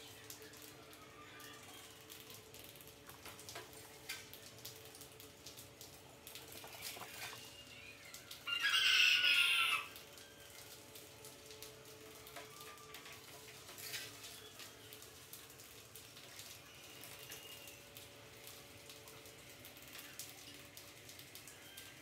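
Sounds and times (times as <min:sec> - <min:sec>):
rat squealing: 0:08.4 - 0:09.9.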